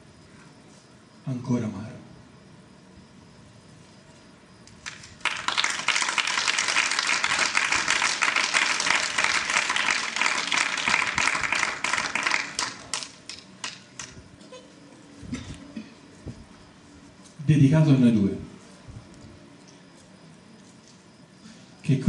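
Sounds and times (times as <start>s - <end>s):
audience applauding: 4.8s - 14.1s.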